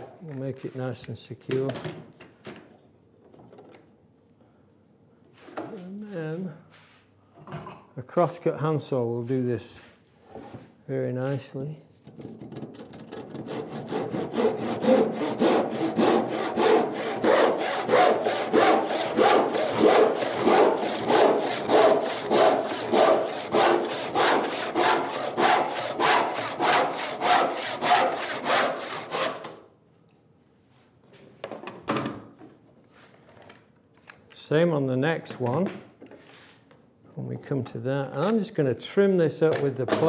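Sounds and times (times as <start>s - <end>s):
handsaw cutting wood: 12.8s - 29.6s.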